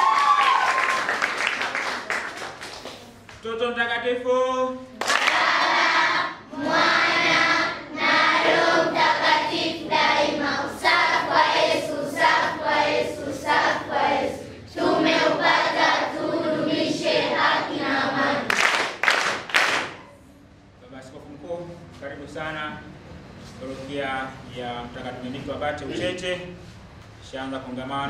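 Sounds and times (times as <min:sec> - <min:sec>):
children singing together: 0:05.2 - 0:18.6.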